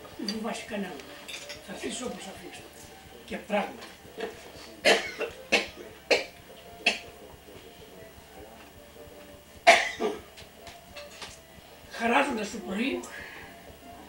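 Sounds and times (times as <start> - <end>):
person coughing: 4.8 - 7.0, 9.7 - 10.2.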